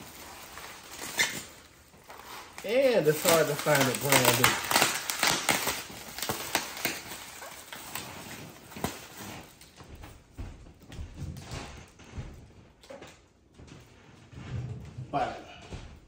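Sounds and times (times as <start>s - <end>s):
bubble wrap crinkling: 0.0s - 10.2s.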